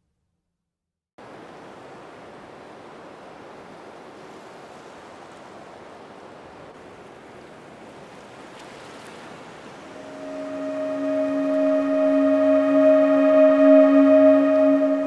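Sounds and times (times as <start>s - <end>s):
ocean surf rushing: 9.0s - 15.0s.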